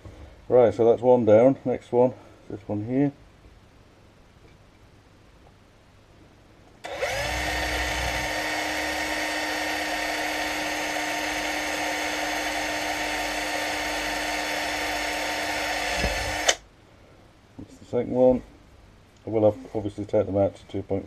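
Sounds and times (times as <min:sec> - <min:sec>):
cordless drill whining: 0:06.8 - 0:16.6.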